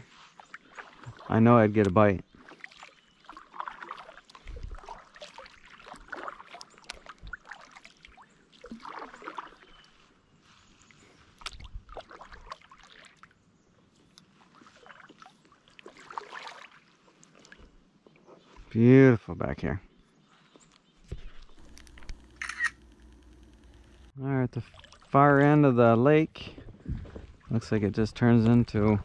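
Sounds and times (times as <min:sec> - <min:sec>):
paddle splashing in water: 0:00.3 - 0:01.3, 0:02.3 - 0:10.1, 0:11.4 - 0:13.3, 0:14.3 - 0:17.7, 0:24.6 - 0:25.2.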